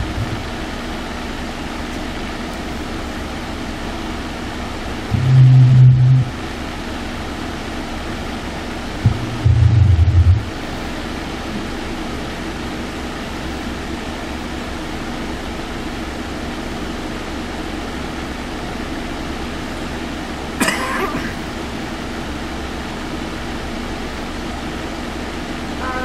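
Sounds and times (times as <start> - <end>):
cars idling: 0.0 - 7.0, 8.8 - 10.8, 25.7 - 26.0.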